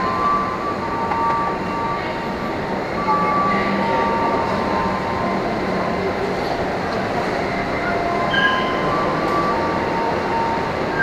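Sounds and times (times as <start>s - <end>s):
train rumble: 0.0s - 11.0s.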